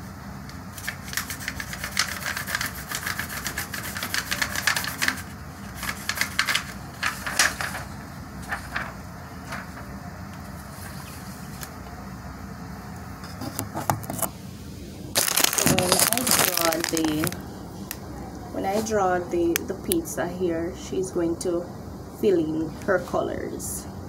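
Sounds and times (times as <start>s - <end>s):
hands handling paper: 0.7s - 11.8s, 15.2s - 18.0s.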